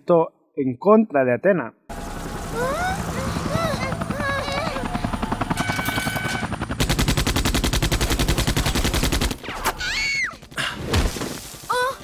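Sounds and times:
automatic gunfire: 6.8 - 9.6.

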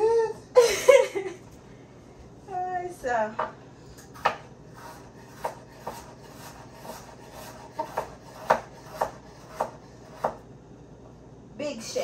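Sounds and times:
knife chopping on cutting board: 3.4 - 10.4.

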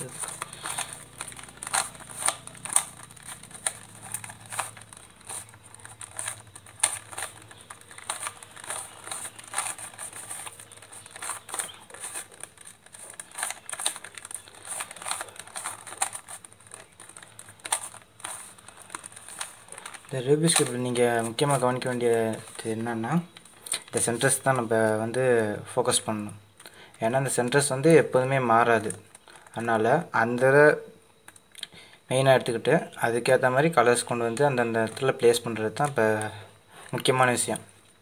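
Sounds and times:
plastic puzzle cube clicking: 0.0 - 21.6.

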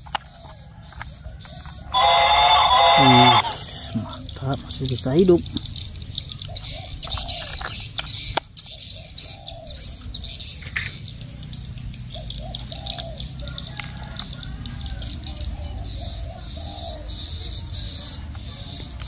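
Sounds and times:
plastic clicks: 0.0 - 1.8, 7.0 - 8.5
birds chirping: 0.0 - 19.0.

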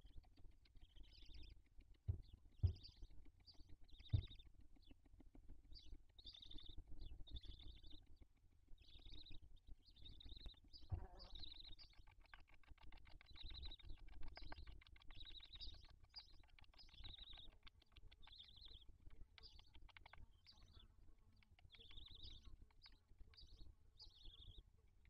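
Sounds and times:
owl chicks squeaky calls: 2.1 - 4.4, 8.8 - 12.2, 12.8 - 24.6.

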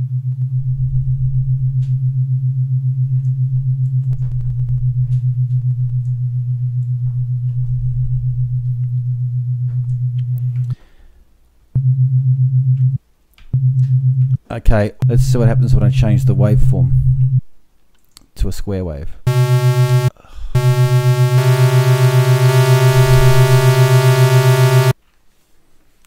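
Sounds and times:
low pulsing synth tone: 0.0 - 10.2, 19.3 - 25.0.

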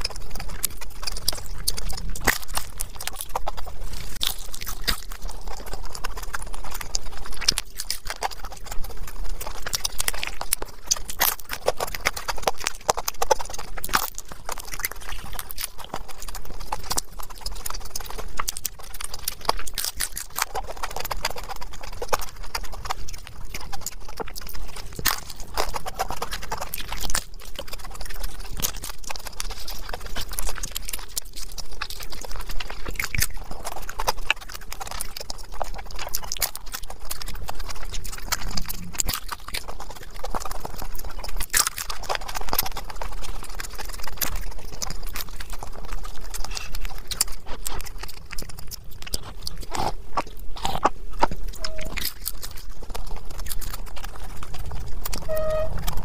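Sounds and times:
crunchy chewing: 0.0 - 56.0.

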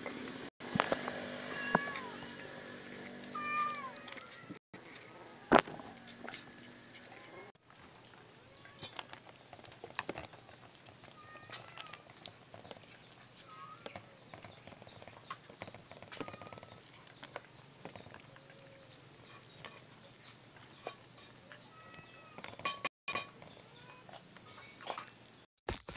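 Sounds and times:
cats crunching dry food: 1.7 - 21.7.

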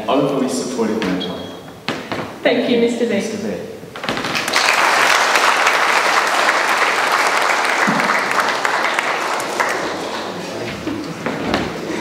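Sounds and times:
audience applause: 4.0 - 11.0.

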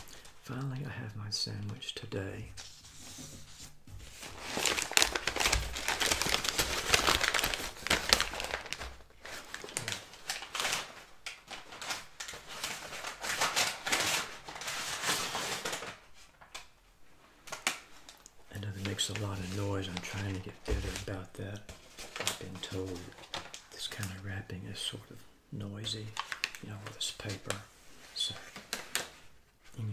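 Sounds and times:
paper bag crinkling: 4.2 - 16.4, 17.5 - 24.3, 25.8 - 29.4.

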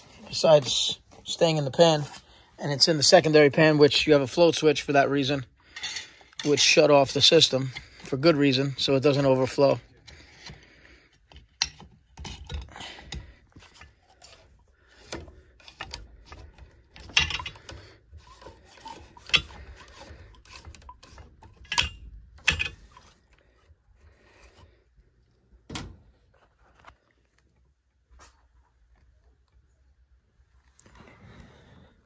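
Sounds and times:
plastic pipe fittings clicking and knocking: 5.6 - 24.8.

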